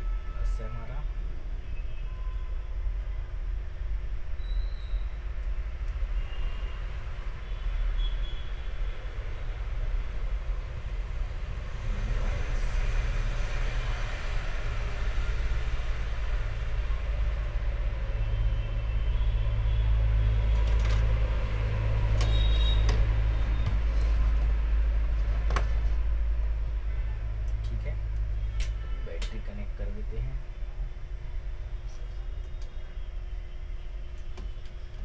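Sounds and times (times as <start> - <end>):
steady low rumble: 8.8 - 28.6
sharp clicks of handled wires: 27.4 - 29.5.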